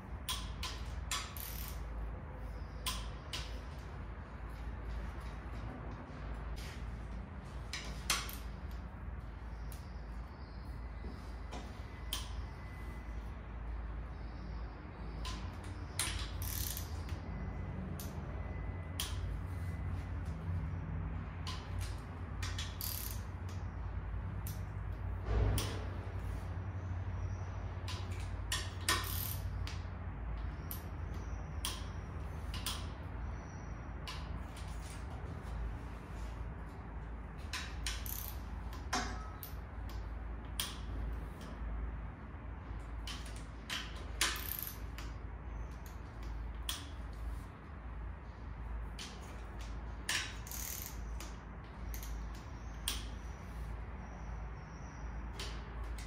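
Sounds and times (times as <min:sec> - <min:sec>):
steady low hum: 0:00.0 - 0:56.0
socket wrench clicking: 0:00.2 - 0:01.9, 0:02.8 - 0:03.6, 0:15.2 - 0:17.2, 0:21.4 - 0:23.6, 0:24.4 - 0:24.7, 0:27.9 - 0:29.8, 0:30.6 - 0:33.0, 0:37.5 - 0:40.9, 0:43.0 - 0:47.1, 0:49.0 - 0:53.4.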